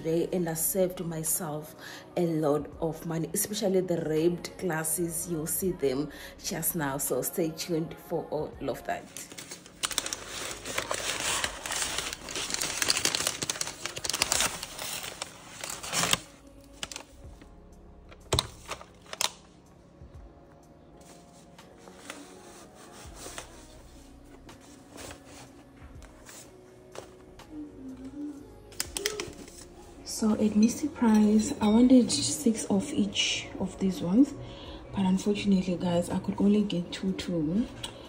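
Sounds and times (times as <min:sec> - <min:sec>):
paper wrapping crinkling: 0:08.9 - 0:17.5, 0:18.1 - 0:19.6, 0:21.0 - 0:27.6, 0:28.7 - 0:29.9.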